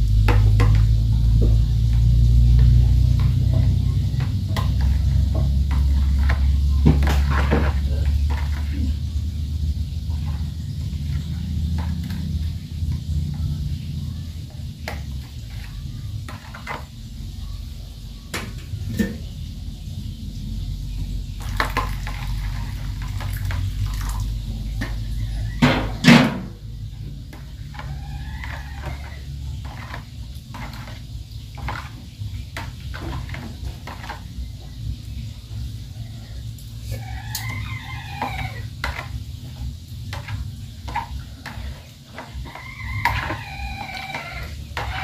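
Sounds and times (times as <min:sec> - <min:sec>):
spoon scraping plastic bowl: 0:00.3 - 0:09.0, 0:27.3 - 0:34.4, 0:36.8 - 0:45.0.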